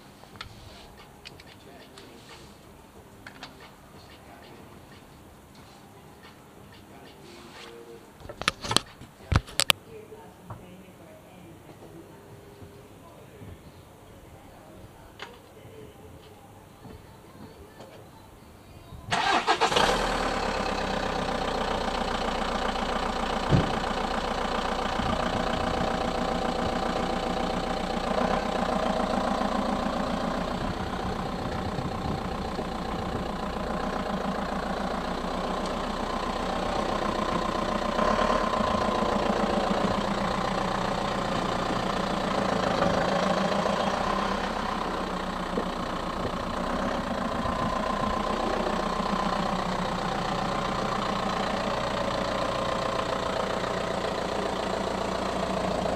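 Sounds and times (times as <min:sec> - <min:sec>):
car engine starting and idling: 0:19.1 - 0:55.9.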